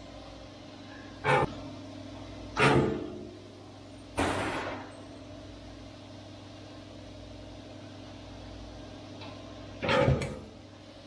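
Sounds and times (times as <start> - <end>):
bottling machinery humming: 0.0 - 11.0
loud machine clunk: 1.2 - 1.6, 2.6 - 3.2, 4.2 - 4.9, 9.8 - 10.5.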